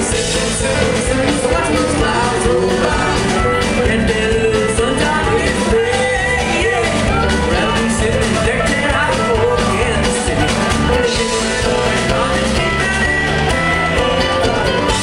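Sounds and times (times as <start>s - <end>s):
live band playing amplified music: 0.0s - 15.0s.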